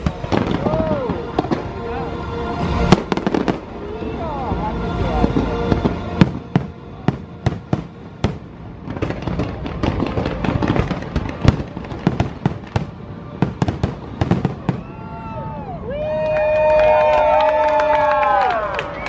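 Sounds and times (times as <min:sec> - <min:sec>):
fireworks bangs and crackling: 0:00.0 - 0:02.0, 0:02.6 - 0:04.2, 0:05.0 - 0:15.5
show music: 0:00.0 - 0:15.9.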